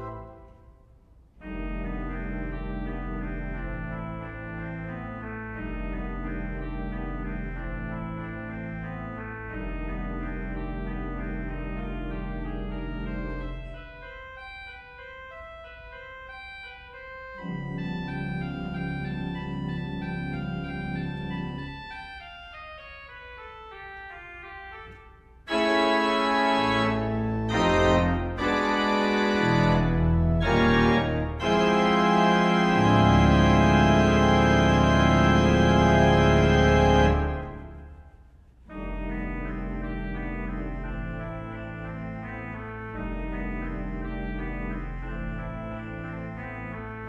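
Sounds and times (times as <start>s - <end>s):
organ chords: 0.0s - 47.0s.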